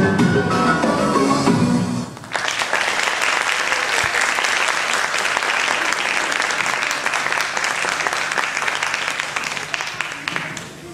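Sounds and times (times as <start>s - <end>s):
audience applauding: 2.2s - 10.9s.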